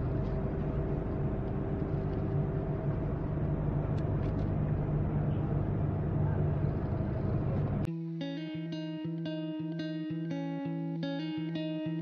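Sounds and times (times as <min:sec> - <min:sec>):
faint steady hum: 0:00.0 - 0:07.9
ship engines low drone: 0:00.0 - 0:07.9.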